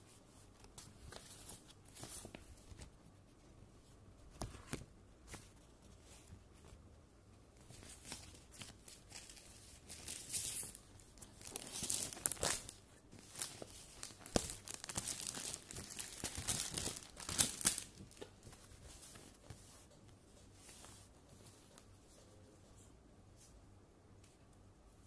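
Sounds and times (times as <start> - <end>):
paper rustling and crinkling: 0.4 - 3.0, 7.6 - 22.3.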